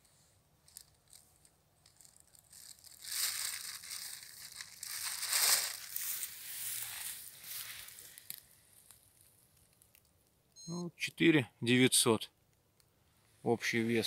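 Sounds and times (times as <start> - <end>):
plastic bag crinkling: 0.6 - 10.2.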